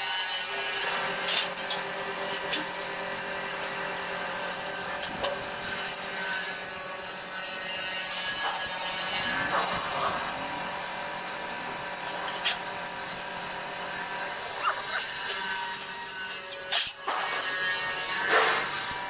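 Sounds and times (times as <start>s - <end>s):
steady low hum: 8.2s - 16.2s.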